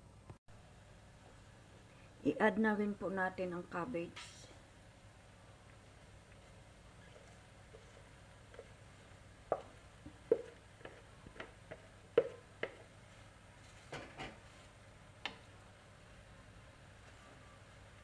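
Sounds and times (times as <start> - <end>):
wooden spatula knocking on a wok: 9.4 - 12.9.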